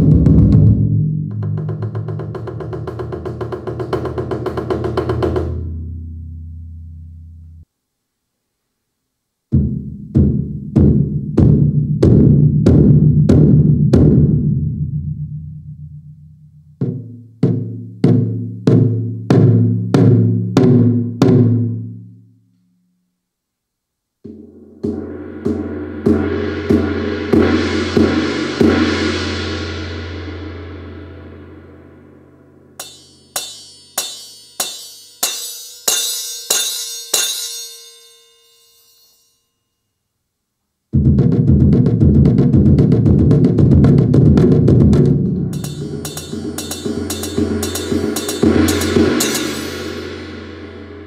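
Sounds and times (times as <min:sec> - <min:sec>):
electronic drum strikes: 0:09.5 - 0:14.6, 0:24.3 - 0:28.8, 0:32.6 - 0:38.8, 0:41.0 - 0:51.0
electronic drum strikes ringing: 0:32.7 - 0:39.4, 0:45.5 - 0:51.0.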